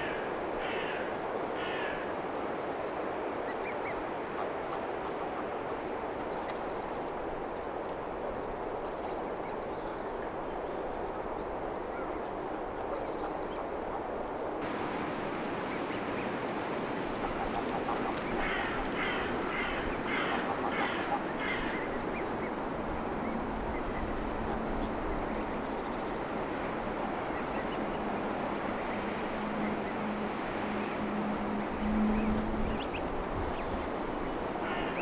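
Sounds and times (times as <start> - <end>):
crow cawing: 0.0 - 2.1, 18.4 - 21.9, 34.6 - 35.0.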